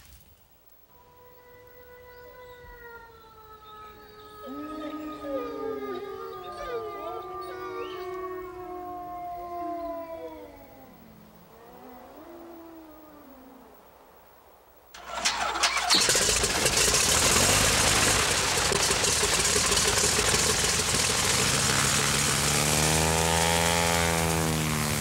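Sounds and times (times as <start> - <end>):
engine revving: 15.0 - 25.0
engine starting and running: 15.0 - 25.0.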